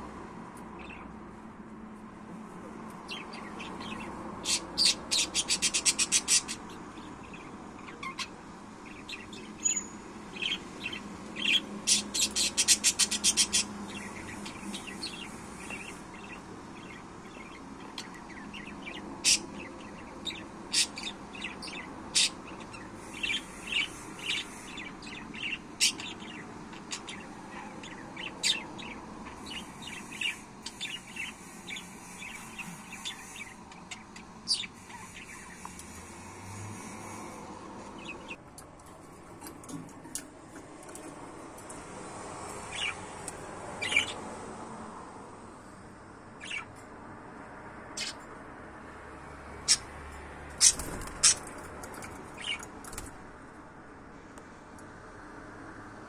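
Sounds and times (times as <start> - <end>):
budgerigars chirping: 3.1 - 37.4, 42.7 - 43.0, 43.8 - 44.2, 46.4 - 46.7, 48.0 - 48.2, 49.6 - 49.9, 50.5 - 52.7.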